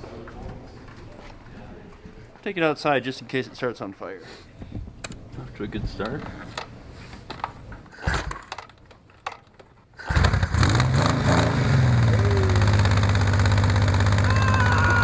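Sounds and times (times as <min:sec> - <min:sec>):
motorcycle engine starting and idling: 0:07.9 - 0:15.0.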